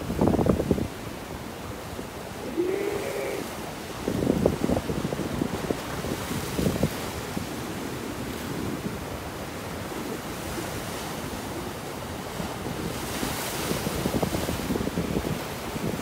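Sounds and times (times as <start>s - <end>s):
ocean surf breaking on rocks: 0.0s - 16.0s
wind buffeting microphone: 2.0s - 9.2s, 12.3s - 16.0s
wave crashing: 2.2s - 6.9s.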